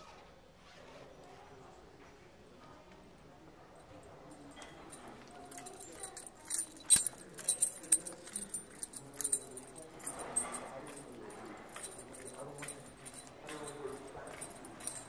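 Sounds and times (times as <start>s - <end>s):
faint voices murmuring: 1.4s - 15.0s
small metal objects jingling: 4.3s - 15.0s.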